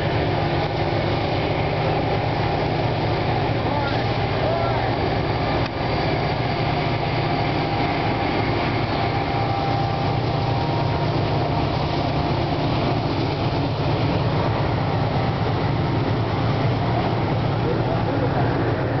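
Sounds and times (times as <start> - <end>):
diesel locomotive passing: 0.0 - 19.0
freight cars rolling on rails: 0.0 - 19.0.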